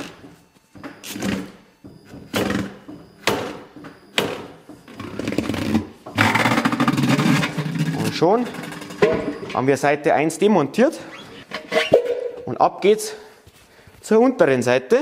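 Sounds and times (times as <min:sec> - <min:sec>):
tyre changing machine running: 0:00.0 - 0:09.7.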